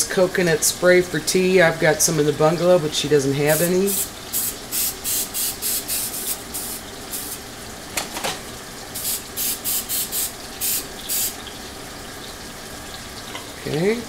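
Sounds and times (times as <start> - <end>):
aerosol spray bursts: 3.5 - 7.4, 9.0 - 11.4.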